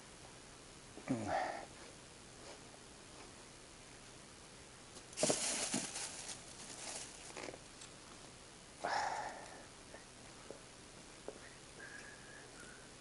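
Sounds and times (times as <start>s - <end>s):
rustling and crinkling: 4.9s - 8.2s.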